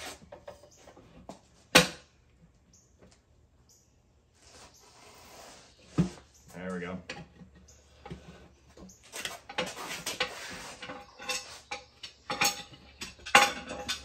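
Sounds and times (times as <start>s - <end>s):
rubber tire rubbing over rim: 4.4s - 6.4s, 8.0s - 11.7s
tire bar clanking on metal: 7.0s - 14.0s.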